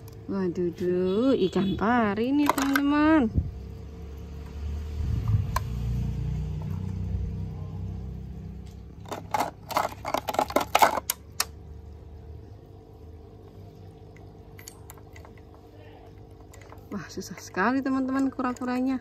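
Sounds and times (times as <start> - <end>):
plastic toys clacking in a bucket: 2.2 - 3.2, 8.7 - 11.6, 14.6 - 19.0.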